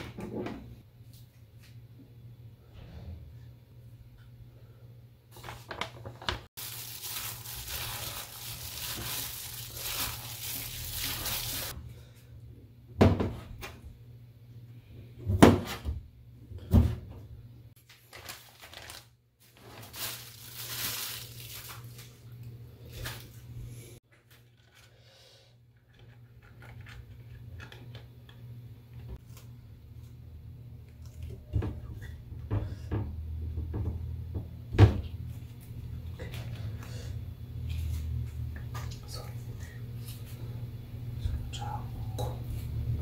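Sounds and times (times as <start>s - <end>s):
rustling handling noise: 5.4s - 11.8s, 17.8s - 24.9s.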